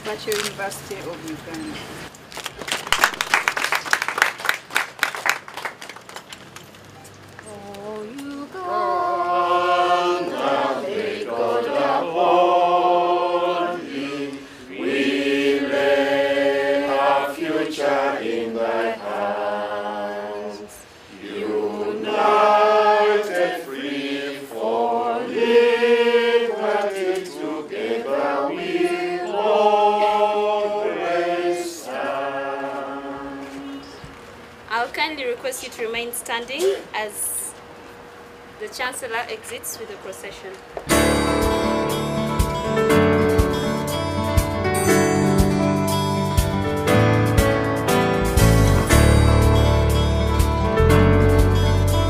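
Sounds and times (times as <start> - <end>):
group singing unaccompanied: 7.5 - 34.1.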